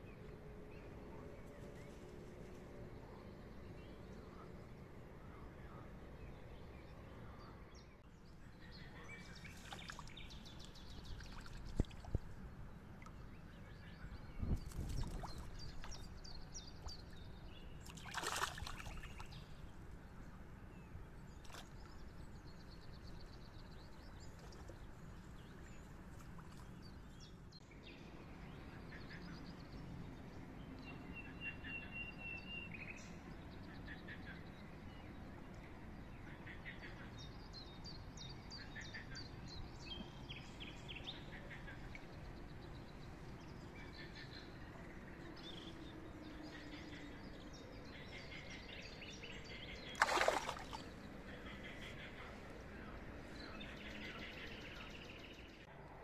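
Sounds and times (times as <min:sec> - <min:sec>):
small birds chirping: 0:07.4 - 0:20.2
fish splashing in water: 0:17.9 - 0:19.3, 0:49.9 - 0:50.9.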